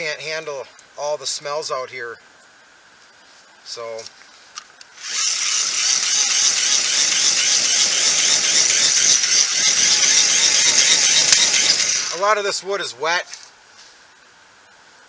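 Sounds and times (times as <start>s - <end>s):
fire blower whirring: 5.0s - 12.4s.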